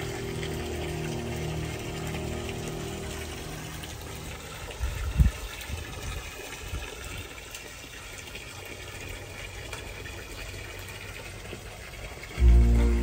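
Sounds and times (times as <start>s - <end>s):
faint low rumble: 12.4s - 13.0s.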